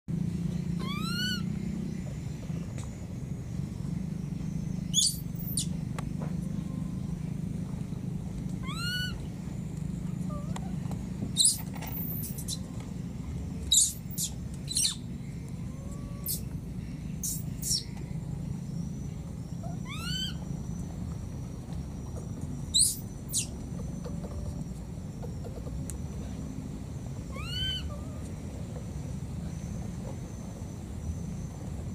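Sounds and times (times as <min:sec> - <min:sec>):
infant monkey high-pitched calls: 0:00.7 - 0:01.8, 0:04.8 - 0:05.8, 0:08.6 - 0:09.3, 0:10.2 - 0:12.7, 0:13.7 - 0:16.6, 0:17.2 - 0:17.9, 0:19.4 - 0:20.7, 0:22.7 - 0:23.6, 0:27.2 - 0:28.5.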